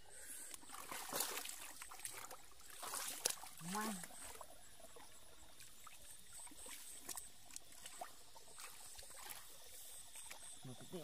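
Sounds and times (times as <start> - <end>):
high insect chirp: 0.0 - 11.0
hands squelching in mud: 0.5 - 4.3.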